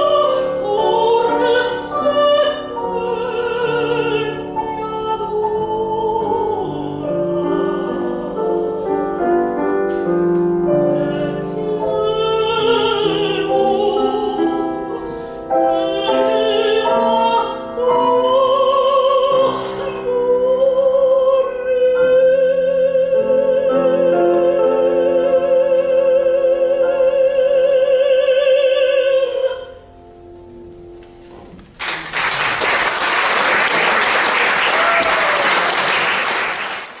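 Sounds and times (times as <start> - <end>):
woman singing with vibrato: 0.0 - 9.8, 10.6 - 29.8
grand piano: 0.0 - 37.0
audience applauding loudly: 31.7 - 37.0.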